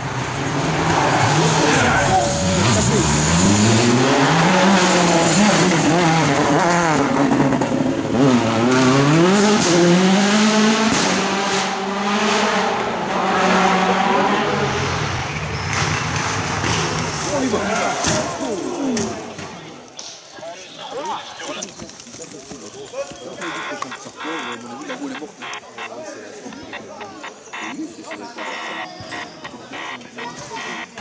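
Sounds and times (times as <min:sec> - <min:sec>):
rally car engine revving: 0:00.0 - 0:19.5, 0:23.4 - 0:31.0
tyres on gravel: 0:16.8 - 0:31.0.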